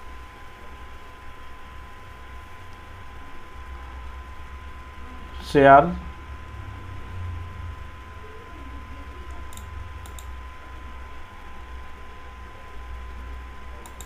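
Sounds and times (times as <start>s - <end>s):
low hum: 0.0s - 14.0s
computer mouse clicks: 9.3s - 10.3s.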